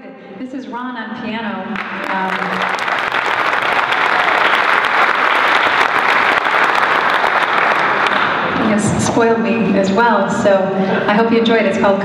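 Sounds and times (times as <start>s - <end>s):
audience applauding: 1.8s - 8.6s.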